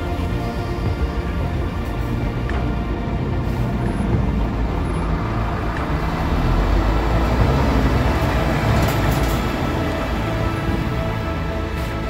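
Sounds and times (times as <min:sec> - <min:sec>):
truck diesel engine driving past: 0:03.1 - 0:12.0.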